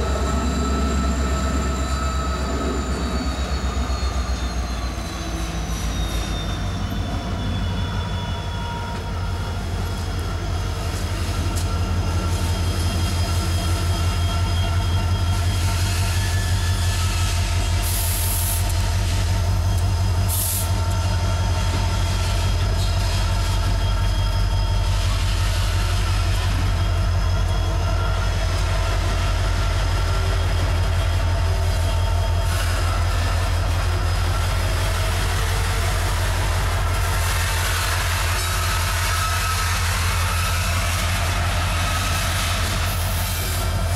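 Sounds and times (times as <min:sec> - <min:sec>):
high-pitched ringing tones: 0:00.0 - 0:17.8
diesel locomotive engine rumble: 0:00.0 - 0:43.9.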